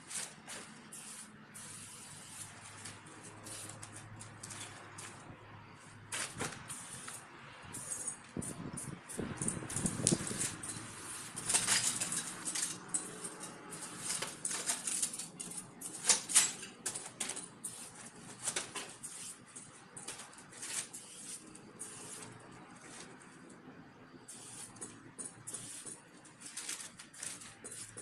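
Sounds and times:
paper rustling underfoot: 0:00.0 - 0:01.2, 0:01.8 - 0:07.2, 0:15.9 - 0:23.3, 0:25.6 - 0:28.0
spray paint can hissing: 0:00.1 - 0:04.1, 0:06.7 - 0:11.5, 0:17.6 - 0:18.0, 0:19.0 - 0:19.4, 0:20.8 - 0:22.3, 0:24.3 - 0:26.0, 0:27.6 - 0:28.0.

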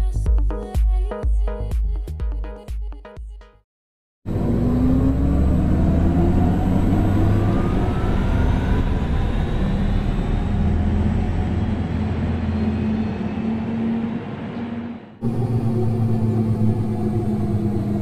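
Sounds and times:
rising electronic tones: 0:04.3 - 0:11.2
electric car deep hum: 0:04.3 - 0:12.4, 0:15.2 - 0:18.0.

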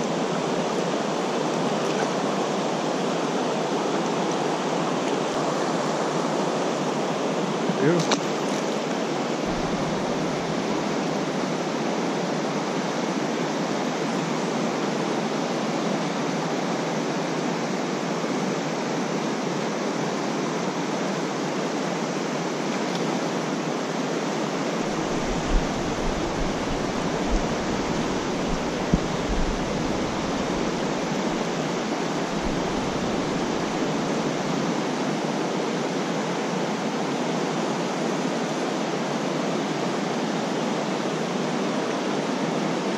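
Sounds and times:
creek water rushing: 0:00.0 - 0:42.9
low rumbling: 0:09.4 - 0:10.9, 0:24.8 - 0:31.4.

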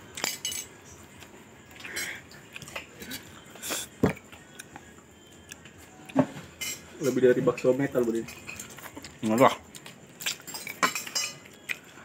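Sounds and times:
chewing food: 0:01.1 - 0:06.3, 0:08.0 - 0:10.5, 0:11.4 - 0:12.0.

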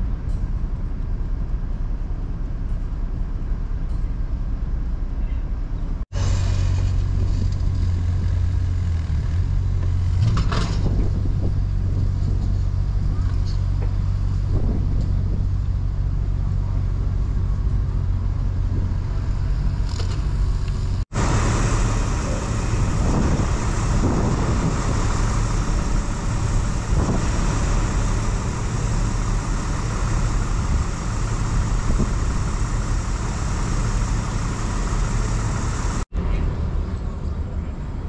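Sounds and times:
boat engine idling: 0:20.7 - 0:36.0
rushing wind and river water: 0:21.1 - 0:36.1.

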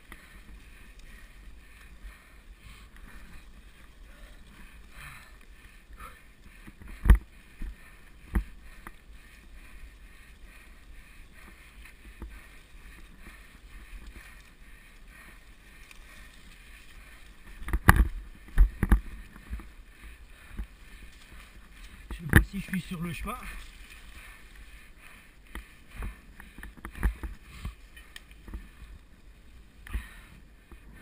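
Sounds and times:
bike tyres rustling through leaves: 0:00.0 - 0:30.2.

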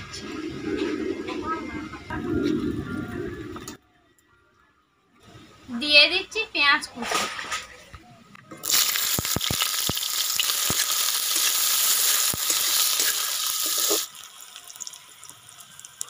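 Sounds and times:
onions sizzling in hot oil: 0:08.6 - 0:16.0
metal spatula stirring: 0:10.4 - 0:14.1.

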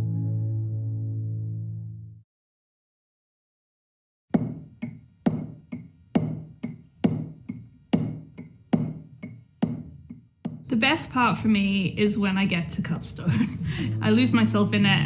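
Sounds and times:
mallet striking chisel into stone: 0:04.3 - 0:10.7.

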